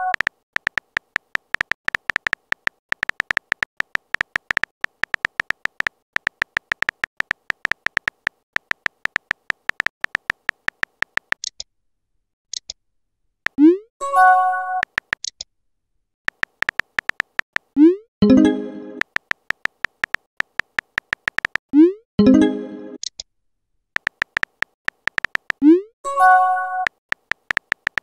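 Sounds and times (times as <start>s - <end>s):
phone keyboard typing clicks: 0.0s - 11.6s, 14.8s - 15.4s, 16.3s - 17.8s, 19.0s - 21.7s, 24.0s - 25.8s, 26.8s - 28.0s.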